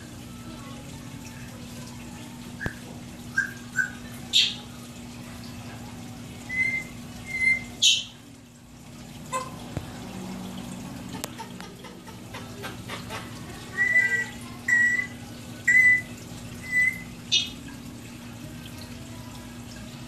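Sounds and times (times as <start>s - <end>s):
aquarium pump hum: 0.0s - 20.0s
running water: 0.0s - 20.0s
high chirps and peeps: 6.5s - 8.2s.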